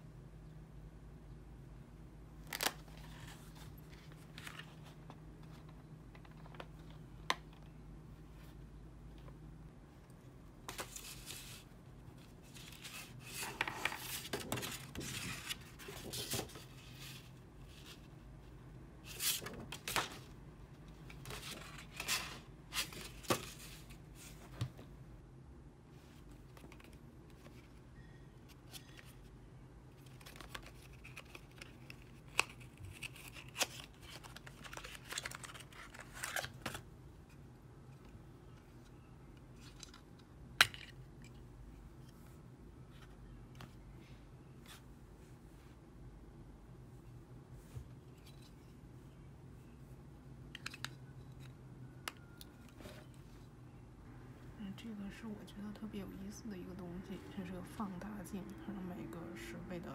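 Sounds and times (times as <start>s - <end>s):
paper and packaging rustling: 30.0s - 36.8s.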